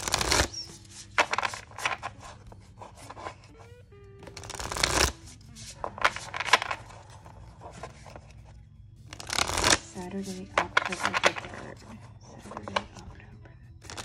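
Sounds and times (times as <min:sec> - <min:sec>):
swishing card shuffle: 0:00.0 - 0:08.4, 0:09.1 - 0:11.7
cards flicking and slapping: 0:00.0 - 0:11.7.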